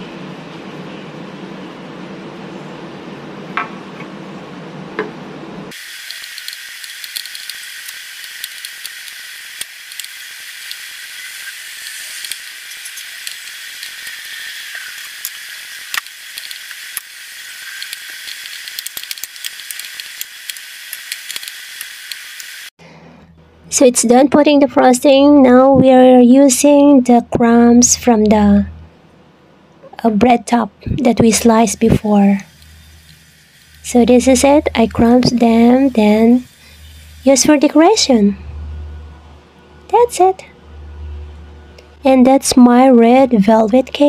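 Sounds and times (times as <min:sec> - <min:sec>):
low hum: 0:04.2 - 0:44.0
steady hiss: 0:05.7 - 0:22.8, 0:30.9 - 0:38.4.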